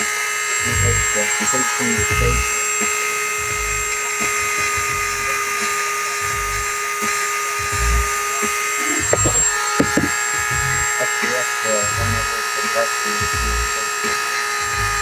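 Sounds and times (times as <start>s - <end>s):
rotary tool grinding whine: 0.0s - 15.0s
tool handling knocks and clicks: 9.1s - 10.2s.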